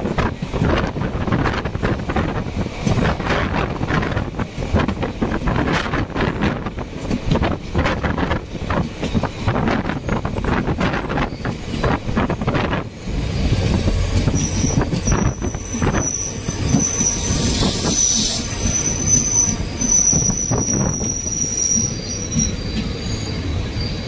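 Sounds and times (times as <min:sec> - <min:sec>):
train wheels rumbling on rails: 0:00.0 - 0:24.0
rail-joint clicks: 0:00.1 - 0:24.0
high wheel squeal: 0:11.2 - 0:11.6, 0:13.2 - 0:24.0.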